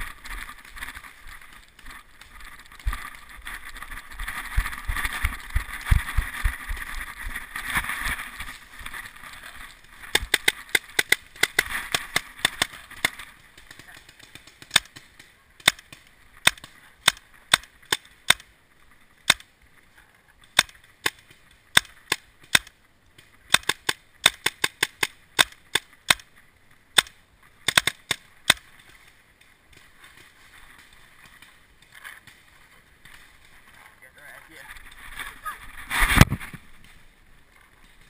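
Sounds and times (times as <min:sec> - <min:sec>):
paintball markers firing: 0:10.1 - 0:18.5, 0:20.5 - 0:26.3, 0:27.0 - 0:29.0.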